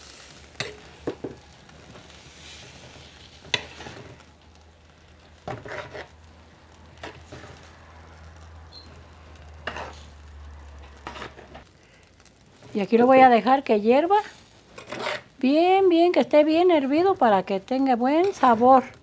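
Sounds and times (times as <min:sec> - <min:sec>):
stew sizzling faintly: 0:00.0 - 0:19.0
metal spoon scraping a pot: 0:03.4 - 0:04.1, 0:05.5 - 0:06.1, 0:09.6 - 0:10.1, 0:11.0 - 0:11.6, 0:14.8 - 0:15.3.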